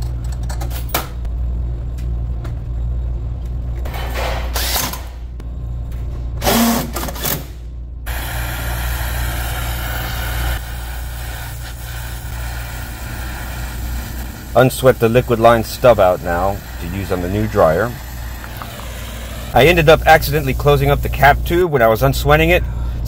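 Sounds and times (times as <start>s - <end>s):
low steady hum: 0.0s - 23.0s
brazing torch hissing: 8.1s - 21.5s.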